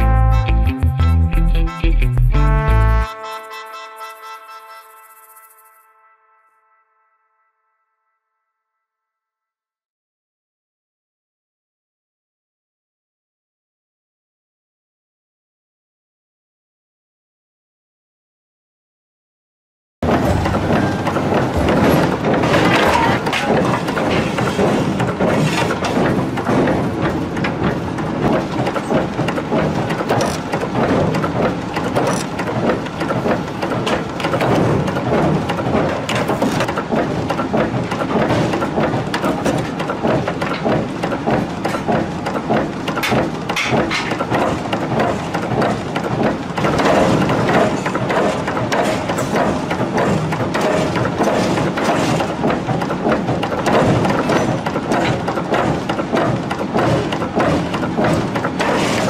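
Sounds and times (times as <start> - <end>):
forging machinery running: 20.0 - 59.0
metal clatter and hammer blows: 20.0 - 59.0.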